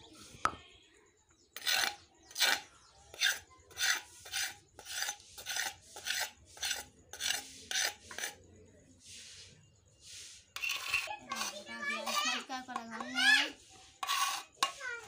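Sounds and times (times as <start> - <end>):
rasping strokes on grinding stone: 1.6 - 8.4, 10.6 - 15.0.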